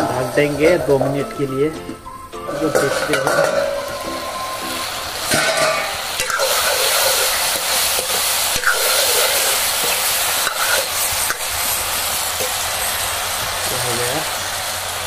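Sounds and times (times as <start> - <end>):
vegetables sizzling in oil: 0.0 - 15.0
metal ladle scraping pan: 2.4 - 11.7.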